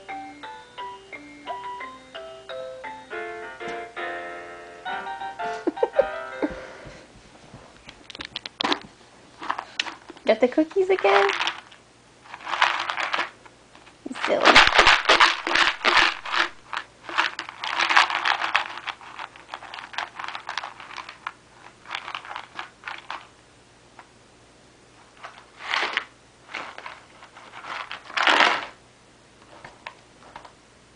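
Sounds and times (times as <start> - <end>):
cookies rattling in plastic container: 9.4 - 13.4, 14.1 - 23.3, 25.2 - 28.8.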